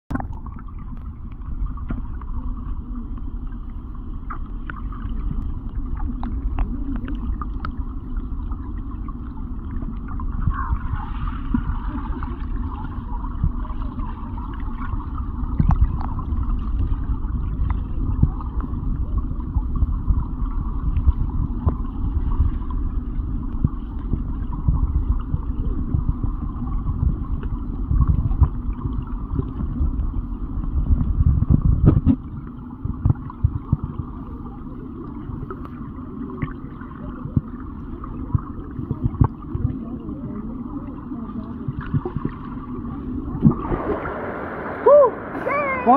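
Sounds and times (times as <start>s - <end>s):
muffled underwater creek rumble: 0.1s - 45.9s
small underwater clicks and pops: 4.2s - 7.9s, 15.5s - 18.8s, 30.9s - 34.0s, 38.2s - 39.8s.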